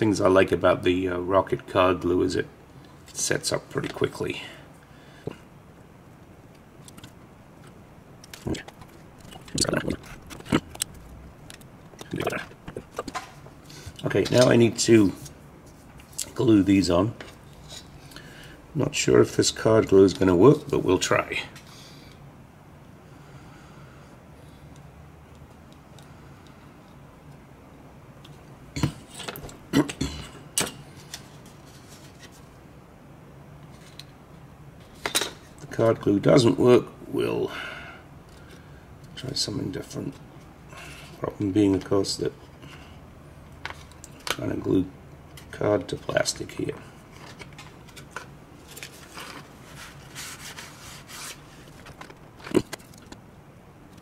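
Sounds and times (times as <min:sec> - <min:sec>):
tissue rubbing on workbench: 0:49.5 - 0:51.7.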